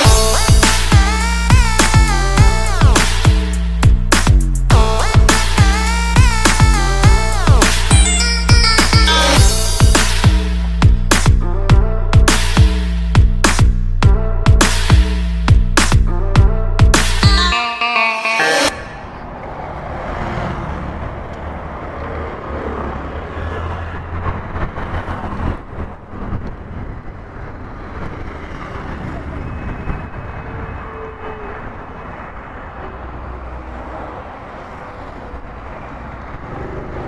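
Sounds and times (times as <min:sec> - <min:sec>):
motorcycle engine humming: 0:00.0 - 0:17.6
background music: 0:00.0 - 0:19.2
traffic passing: 0:00.0 - 0:37.0
wind rush and road noise: 0:18.9 - 0:37.0.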